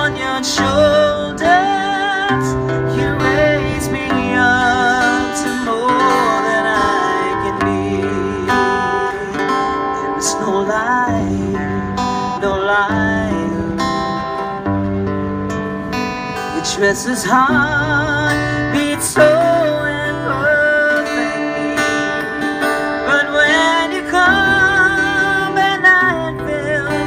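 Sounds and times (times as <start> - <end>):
acoustic guitar strumming: 0.0 - 27.0.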